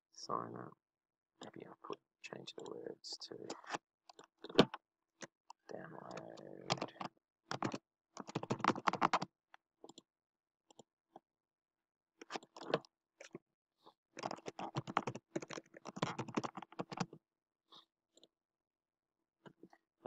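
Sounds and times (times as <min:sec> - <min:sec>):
keyboard typing: 0:06.1 - 0:09.2, 0:14.2 - 0:17.2.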